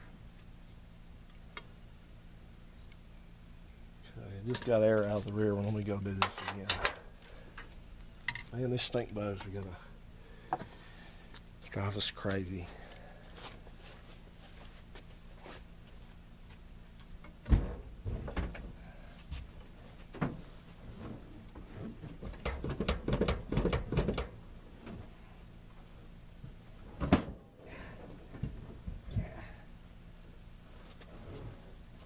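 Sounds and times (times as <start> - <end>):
knocks and clatters: 22.0 - 24.3.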